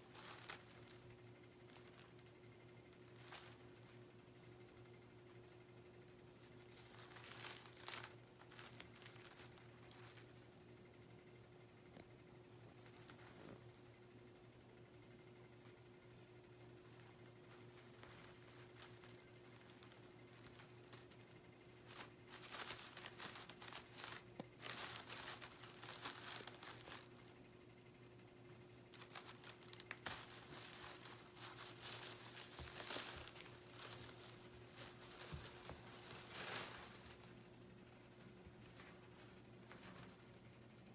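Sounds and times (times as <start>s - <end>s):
packing paper crinkling and tearing: 0.0s - 4.0s, 6.4s - 10.5s, 12.7s - 13.9s, 16.6s - 27.4s, 28.9s - 37.4s.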